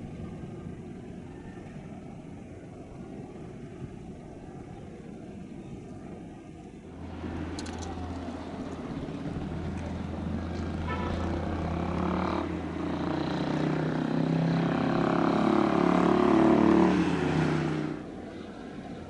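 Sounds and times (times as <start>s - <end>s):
steady low hum: 0.0s - 14.1s
motor vehicle passing: 6.9s - 18.8s.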